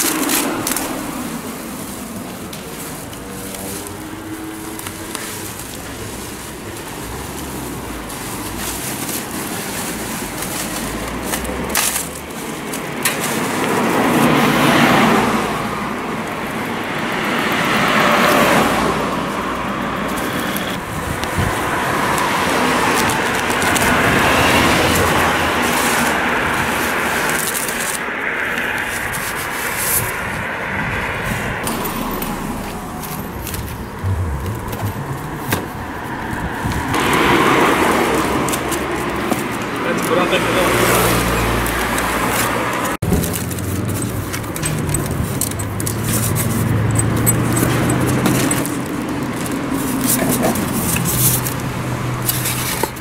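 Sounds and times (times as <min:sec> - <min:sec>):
bubble wrap crinkling: 0:00.0 - 0:14.7, 0:20.2 - 0:30.3, 0:37.0 - 0:51.7
cars passing: 0:00.0 - 0:53.0.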